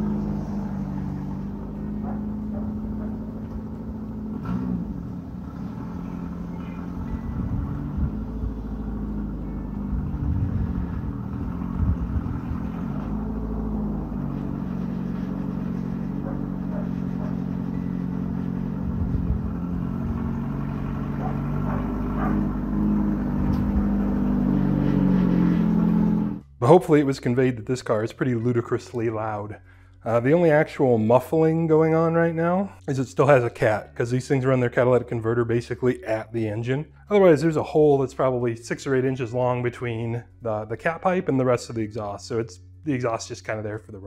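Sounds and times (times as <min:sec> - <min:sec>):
loud car engine with open exhaust: 0:00.0 - 0:26.6.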